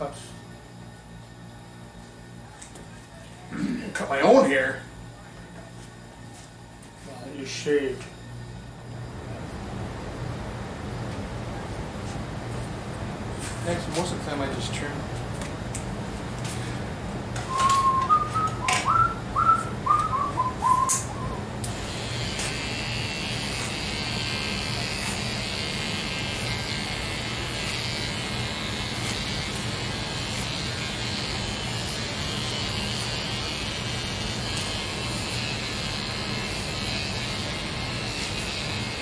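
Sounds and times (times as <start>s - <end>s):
person whistling a tune: 17.5s - 21.4s
electric hair clippers running: 21.2s - 39.0s.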